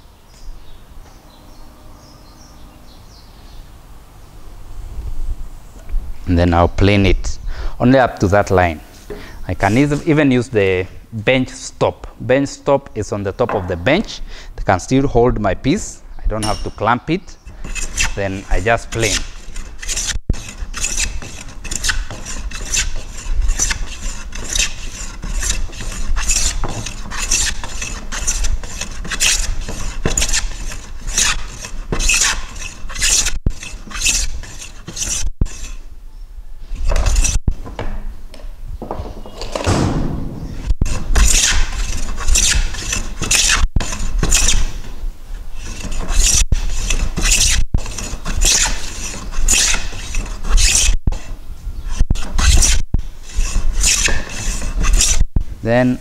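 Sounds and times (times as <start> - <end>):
hand plane shaving wood: 17.5 - 35.8, 40.8 - 44.9, 45.6 - 55.2.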